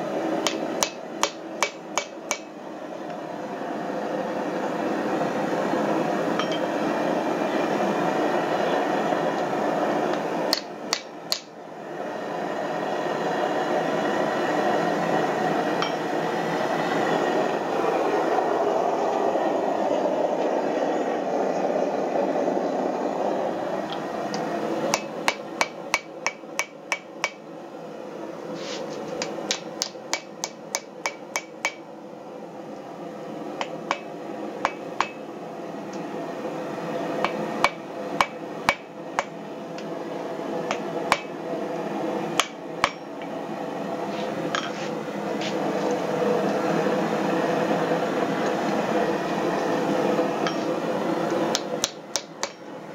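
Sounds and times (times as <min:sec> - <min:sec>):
hammer striking metal on anvil: 0:00.4 - 0:02.5, 0:06.4 - 0:06.6, 0:15.8 - 0:16.0, 0:24.9 - 0:27.4, 0:29.2 - 0:31.8, 0:42.4 - 0:43.1, 0:51.5 - 0:52.6.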